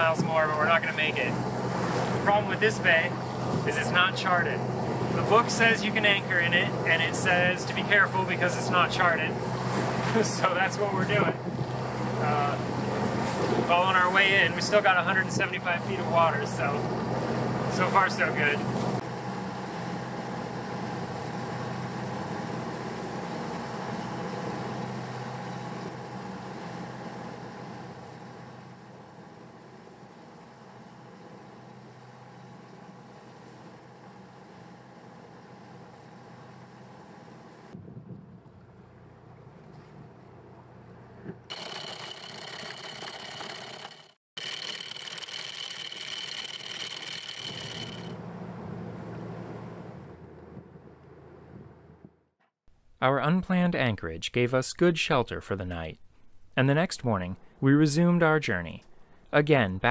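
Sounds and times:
water noise: 0:00.0 - 0:19.0
wind: 0:00.0 - 0:43.9, 0:46.5 - 0:52.3
boat engine humming: 0:00.0 - 0:52.3
anchor chain rattling: 0:41.5 - 0:48.2
windlass high whine: 0:41.5 - 0:51.9.

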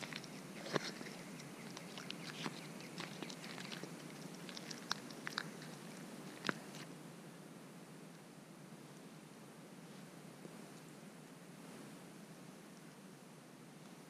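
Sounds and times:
chewing: 0:00.0 - 0:06.9.

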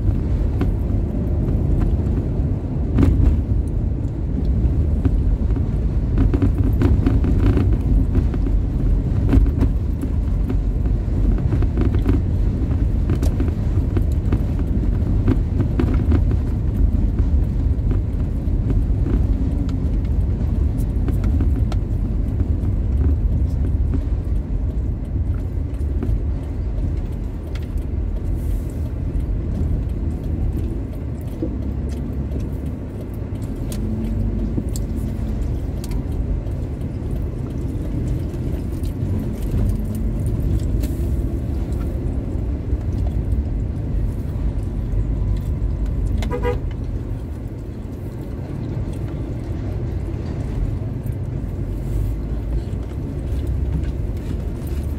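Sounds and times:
vehicle driving rumble: 0:00.0 - 0:54.9
small clicks and rattles: 0:00.1 - 0:54.9
short horn beep: 0:46.3 - 0:46.6.

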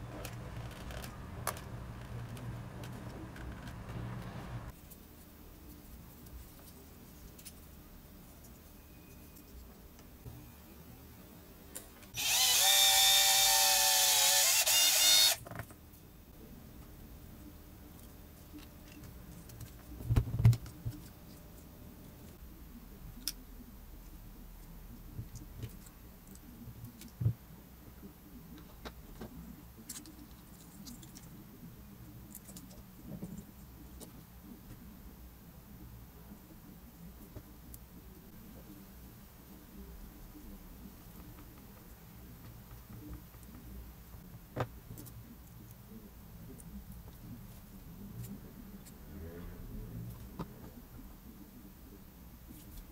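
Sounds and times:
faint clicks and handling noise: 0:00.0 - 0:10.2, 0:16.8 - 0:22.4, 0:23.1 - 0:35.0, 0:40.4 - 0:49.0
cordless drill whining: 0:12.2 - 0:15.4.

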